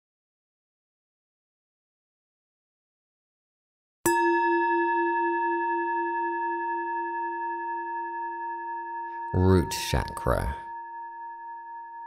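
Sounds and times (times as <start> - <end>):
singing bowl ringing: 4.1 - 9.4, 10.7 - 12.0.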